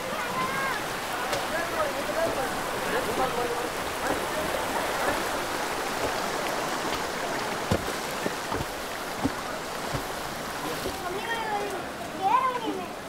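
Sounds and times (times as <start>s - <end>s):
floodwater rushing: 0.0s - 13.0s
wooden pole pounded with dull thuds: 5.0s - 11.0s.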